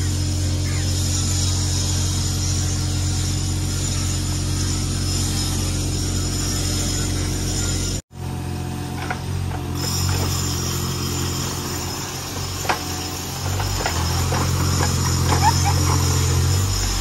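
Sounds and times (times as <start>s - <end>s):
diesel engine humming: 0.0s - 17.0s.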